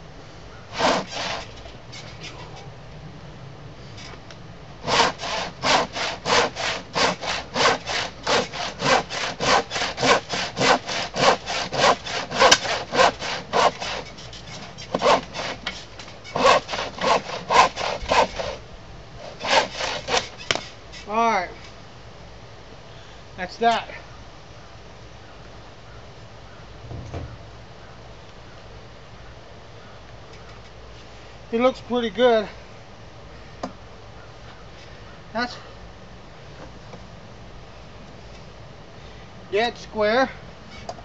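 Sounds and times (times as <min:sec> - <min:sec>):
handsaw cutting wood: 0:00.7 - 0:02.2, 0:04.8 - 0:18.6, 0:19.2 - 0:20.7.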